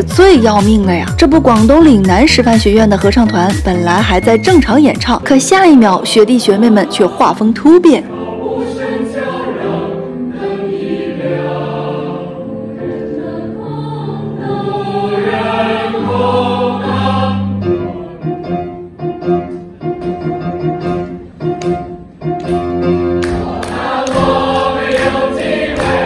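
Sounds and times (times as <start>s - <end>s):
mixed choir singing: 6.6s - 18.5s, 23.2s - 26.0s.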